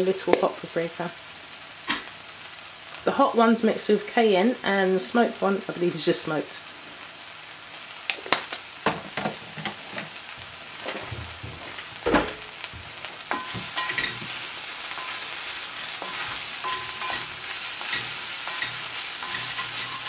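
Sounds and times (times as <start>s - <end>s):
mushrooms and onions sizzling: 0.0s - 20.0s
wooden spoon scraping a pan: 10.8s - 12.1s, 12.9s - 20.0s.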